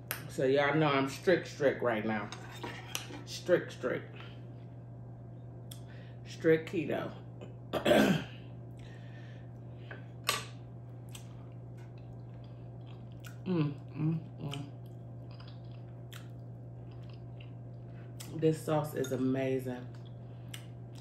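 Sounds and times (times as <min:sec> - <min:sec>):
steady low hum: 0:00.0 - 0:21.0
person chewing: 0:11.0 - 0:18.3.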